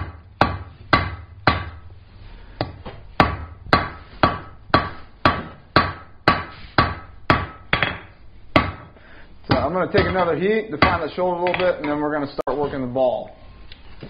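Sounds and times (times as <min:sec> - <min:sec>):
hammer striking metal on anvil: 0:03.2 - 0:08.9.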